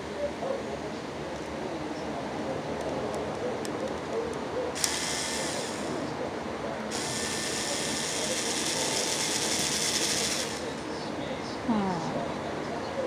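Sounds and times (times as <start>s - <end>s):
electric screwdriver whirring: 4.8s - 5.8s, 7.0s - 10.6s.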